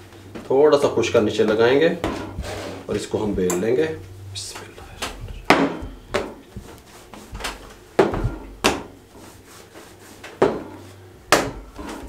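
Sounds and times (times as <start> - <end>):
rolling pin knocking on table: 10.3 - 10.7, 11.3 - 11.7.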